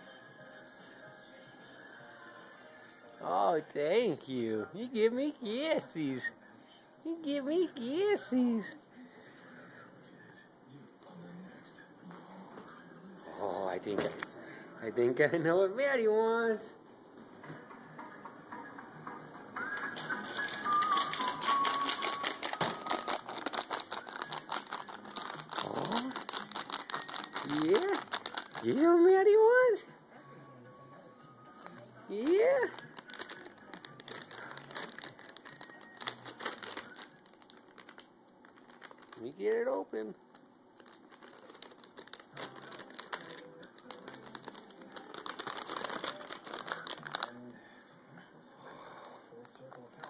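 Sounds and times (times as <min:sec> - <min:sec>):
plastic bag crinkling: 0:17.6 - 0:29.1, 0:31.6 - 0:39.3, 0:40.3 - 0:47.5.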